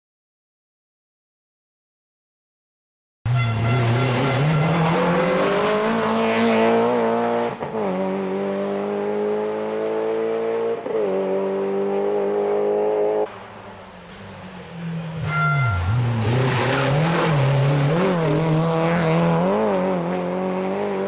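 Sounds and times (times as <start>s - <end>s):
rally car engine at full throttle: 3.3s - 21.0s.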